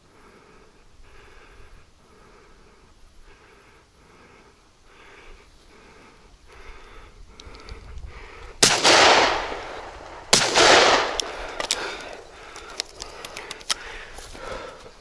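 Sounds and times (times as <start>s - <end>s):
light clicks: 7.3s - 14.9s
shotgun shots echoing: 8.6s - 12.6s.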